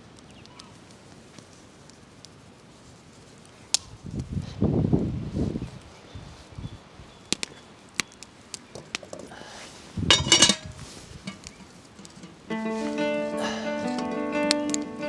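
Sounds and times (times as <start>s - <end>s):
cookware clinking clatter: 10.1s - 10.7s
utensils tapping: 10.1s - 12.4s.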